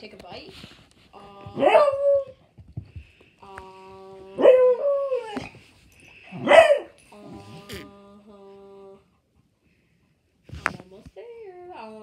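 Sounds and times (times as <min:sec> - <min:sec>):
dog barking and yowling: 0:01.6 - 0:02.4, 0:04.4 - 0:05.6, 0:06.4 - 0:07.0.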